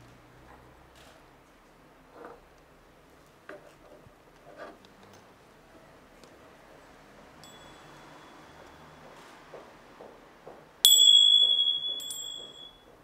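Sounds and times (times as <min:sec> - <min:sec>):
meditation chime ringing: 0:07.4 - 0:08.4, 0:10.9 - 0:12.9.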